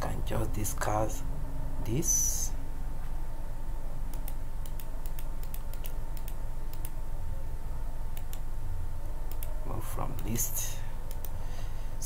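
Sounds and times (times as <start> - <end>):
steady background hum: 0.0 - 12.0
computer key clicks: 4.1 - 7.0.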